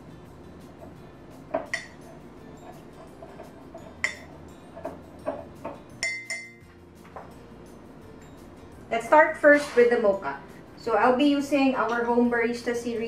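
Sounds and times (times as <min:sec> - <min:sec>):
teaspoon clinking against glass mug: 0:01.5 - 0:06.6.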